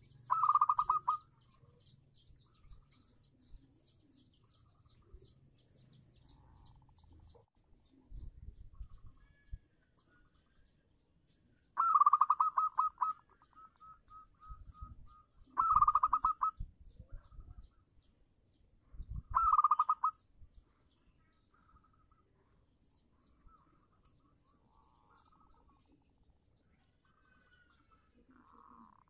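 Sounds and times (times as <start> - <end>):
dove cooing: 0.0 - 1.3, 11.8 - 16.6, 19.2 - 20.1.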